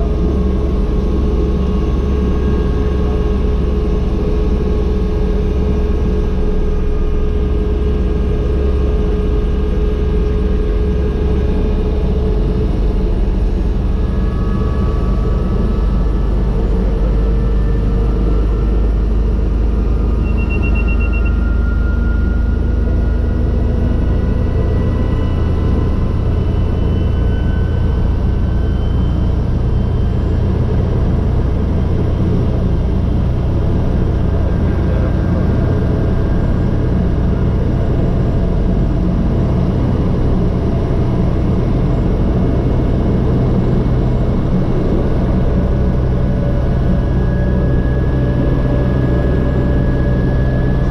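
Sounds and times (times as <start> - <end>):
helicopter engine and rotor rumble: 0.0 - 50.9
turbine whine: 0.0 - 50.9
high beep: 20.1 - 22.4.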